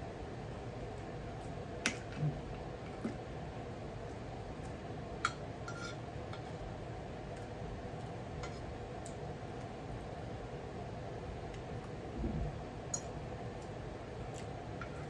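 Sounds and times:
low background hum: 0.0 - 15.0.

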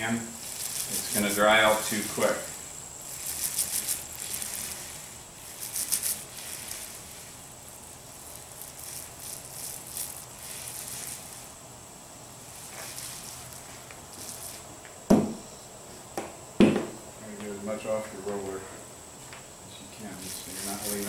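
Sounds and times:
paint roller crackling hiss: 0.0 - 16.4, 17.2 - 21.0
short thump: 15.1 - 15.5, 16.2 - 17.0.

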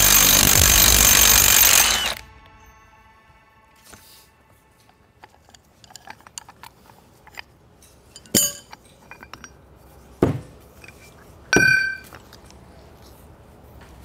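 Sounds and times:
sharp metallic clanks: 5.2 - 9.6, 10.8 - 12.2.

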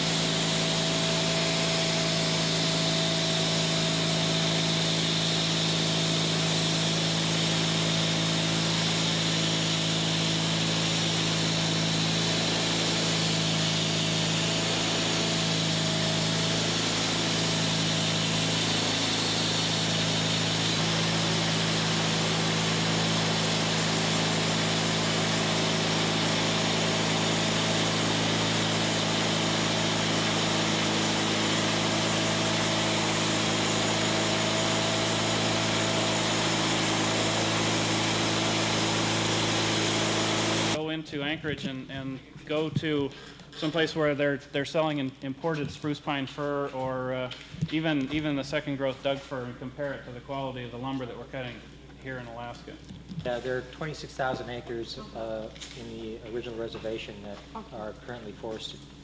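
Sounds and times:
band blade sawing log: 0.0 - 40.8
sawmill engine running: 0.0 - 40.8.

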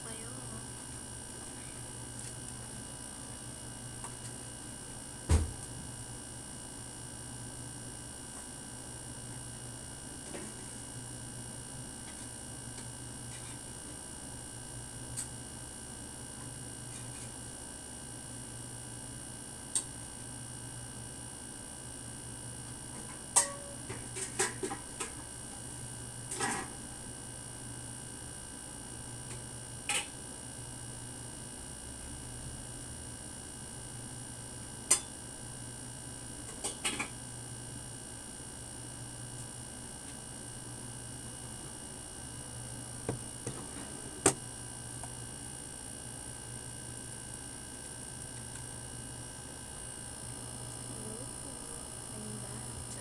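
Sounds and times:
steady low hum: 0.0 - 8.3, 38.3 - 53.0.

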